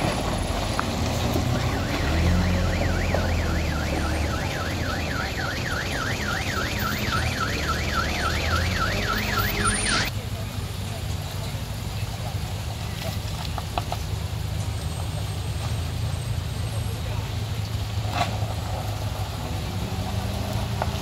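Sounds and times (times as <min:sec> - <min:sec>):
truck engine droning: 0:00.0 - 0:10.4
electronic warbling alarm: 0:01.4 - 0:10.1.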